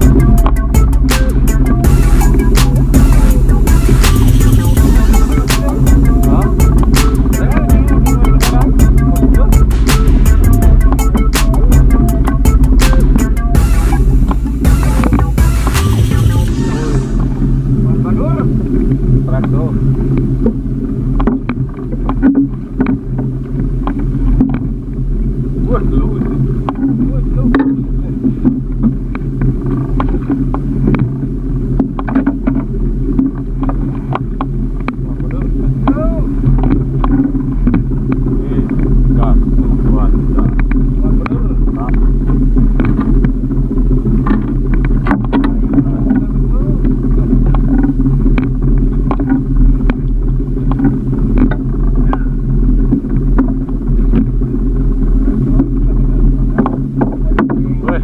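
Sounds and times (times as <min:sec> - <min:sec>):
sharp clicks and knocks: 0:00.0 - 0:16.4, 0:31.8 - 0:38.9, 0:44.1 - 0:54.4
boat engine humming: 0:00.0 - 0:58.0.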